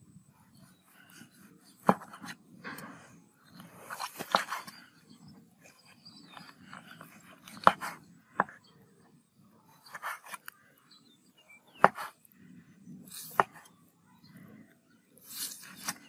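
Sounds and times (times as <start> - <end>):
knife cutting and scraping: 0.5 - 4.9, 5.6 - 8.1, 13.0 - 13.8, 15.2 - 16.0.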